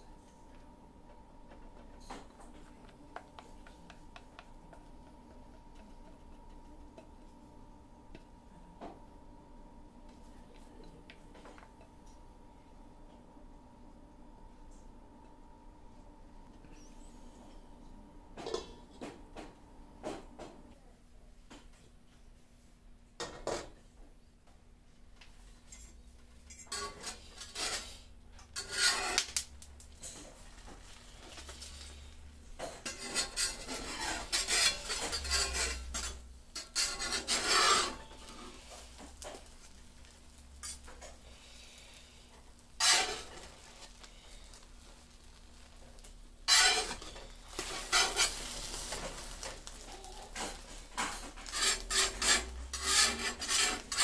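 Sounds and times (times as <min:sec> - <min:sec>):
metal spatula scraping frying pan: 0:26.5 - 0:29.4, 0:31.2 - 0:39.7, 0:42.8 - 0:45.0, 0:46.4 - 0:54.0
faint sizzle from pan: 0:26.6 - 0:54.0.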